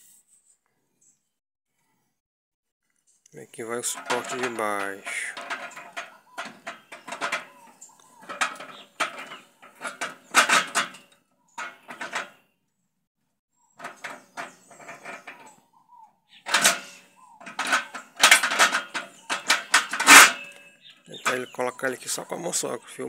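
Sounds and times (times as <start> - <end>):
metal bearing housing clicks and scrapes: 3.8 - 12.4, 13.8 - 15.6, 16.5 - 21.6.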